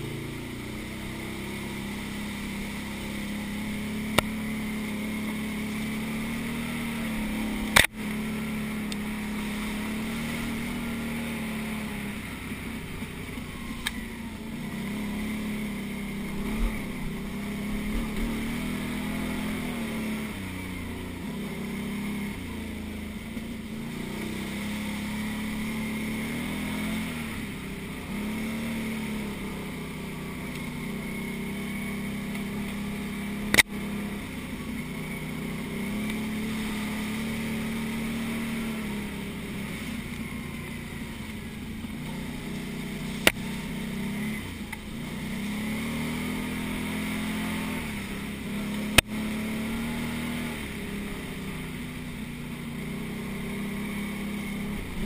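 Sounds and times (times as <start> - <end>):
quad bike engine revving: 0.0 - 55.0.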